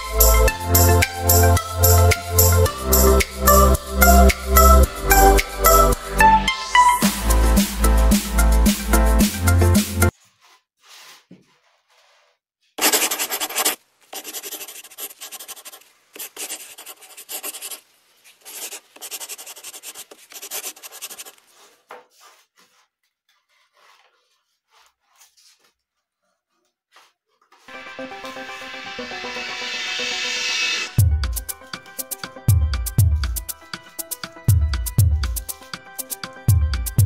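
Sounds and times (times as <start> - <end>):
background music: 0.0 - 10.1, 27.7 - 37.0
hand rubbing on paper: 10.1 - 25.8.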